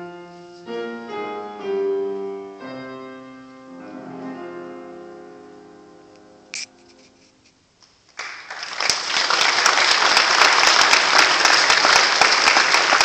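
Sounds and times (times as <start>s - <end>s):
grand piano chord: 0.0s - 7.4s
congregation applauding: 8.1s - 13.0s.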